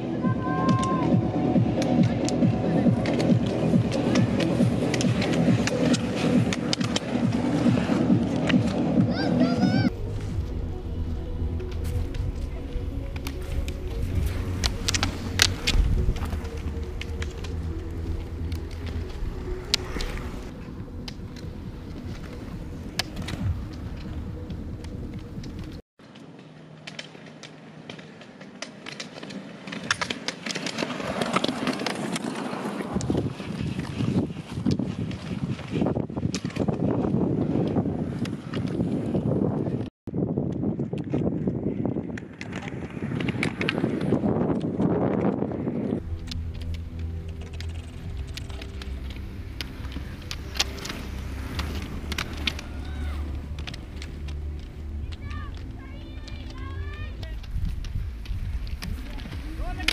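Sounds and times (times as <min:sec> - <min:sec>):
roller skis rolling on asphalt: 0:00.0 - 0:59.9
ski pole tips clicking on pavement: 0:01.8 - 0:09.6, 0:11.6 - 0:39.1, 0:40.4 - 0:59.9.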